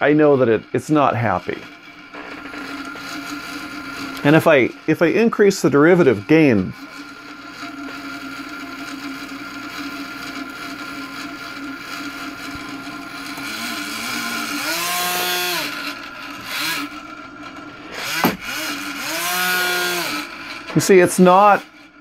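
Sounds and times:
electric motor and propeller humming: 0.0 - 22.0
sharp knock: 18.2 - 18.4.

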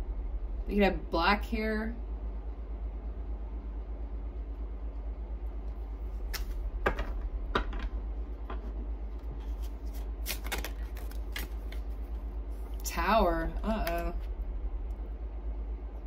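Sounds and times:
low hum: 0.0 - 16.0
cards snapping and flicking: 6.3 - 7.1, 9.6 - 11.9.

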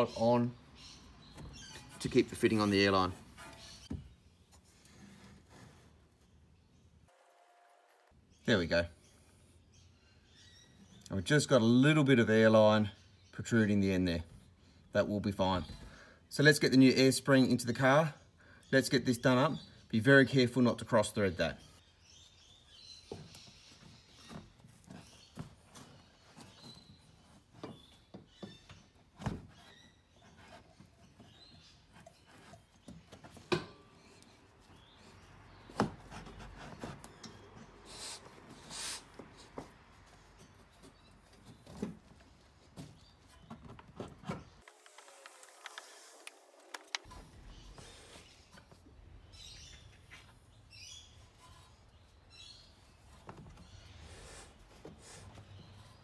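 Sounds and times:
faint rubbing and light knocks: 1.2 - 6.4, 22.4 - 46.3.

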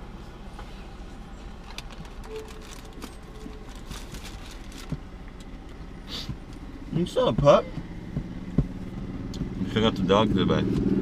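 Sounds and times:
low hum inside car: 0.0 - 11.0
wrapper rustling: 1.6 - 5.0.

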